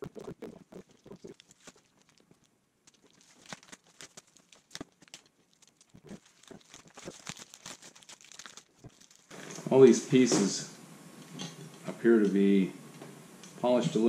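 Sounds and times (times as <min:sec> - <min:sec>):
plastic wrapping crinkling and tearing: 0:00.0 - 0:10.0.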